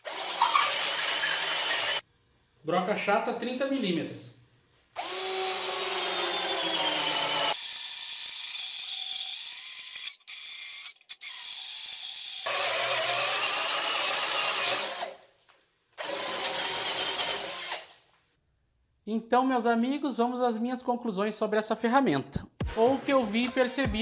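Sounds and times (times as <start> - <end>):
cordless drill whining into wood: 0.0 - 2.0, 5.0 - 15.2, 16.0 - 18.0.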